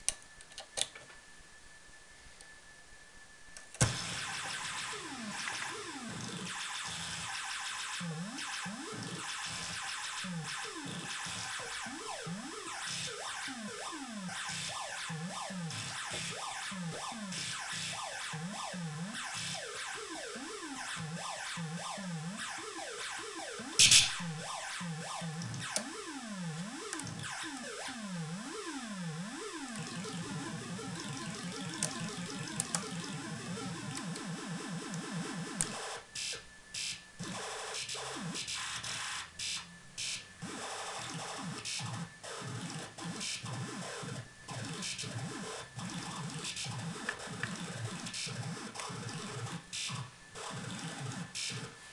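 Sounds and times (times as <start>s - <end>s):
dense noisy synthesizer buzzing: 1.4s - 36.0s
synthesizer pitch sweeps: 3.9s - 35.6s.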